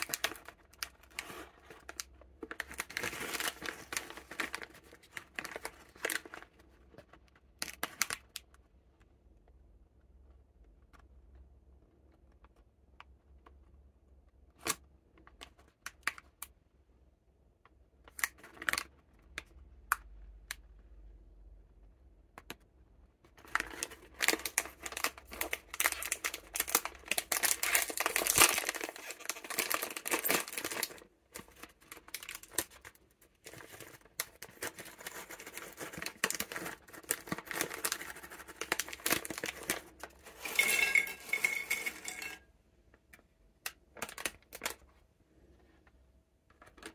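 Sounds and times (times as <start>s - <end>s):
plastic bag crinkling: 0.0s - 8.4s, 23.4s - 42.4s
plastic bag tearing: 23.7s - 31.0s
biscuits clinking on ceramic plate: 40.4s - 42.4s.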